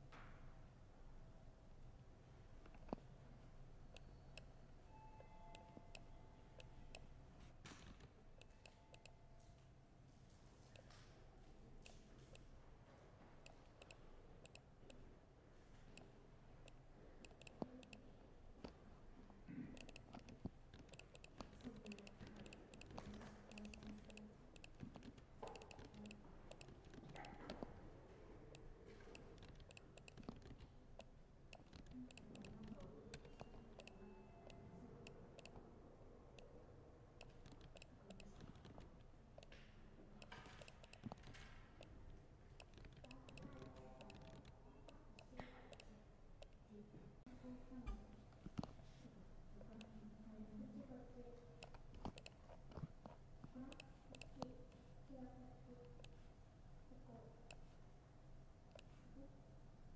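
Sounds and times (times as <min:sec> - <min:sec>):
low room murmur: 0:00.0 - 0:59.9
laptop keyboard typing: 0:05.2 - 0:07.2, 0:07.8 - 0:09.2, 0:13.4 - 0:15.0, 0:16.7 - 0:18.8, 0:19.8 - 0:35.6, 0:37.2 - 0:39.6, 0:40.2 - 0:46.6, 0:51.6 - 0:54.8.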